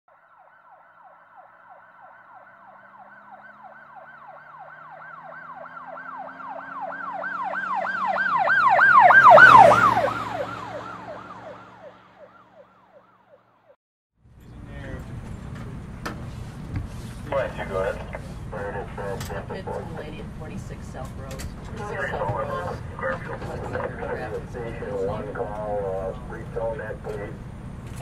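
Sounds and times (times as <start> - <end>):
siren yelping: 0.1 - 13.5, 21.8 - 26.3
vehicle passing: 0.5 - 13.7, 14.3 - 28.0.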